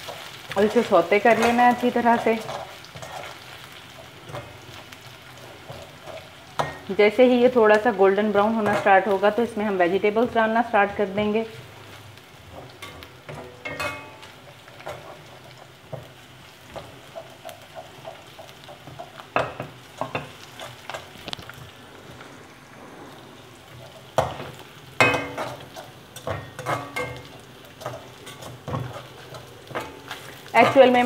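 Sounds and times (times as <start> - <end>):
ginger and garlic sizzling in oil: 0.0 - 31.0
metal spatula scraping and knocking pan: 5.6 - 9.3, 12.5 - 15.3, 23.9 - 31.0.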